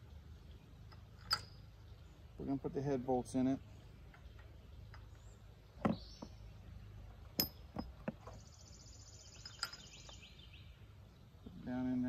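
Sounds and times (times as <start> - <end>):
metal bolts clinking: 0.8 - 1.7, 7.3 - 8.2, 9.4 - 10.1.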